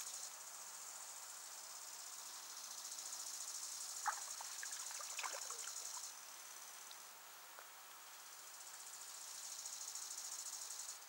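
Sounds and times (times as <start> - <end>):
insects chirring: 0.1 - 7.2
small water splashes: 4.0 - 6.1.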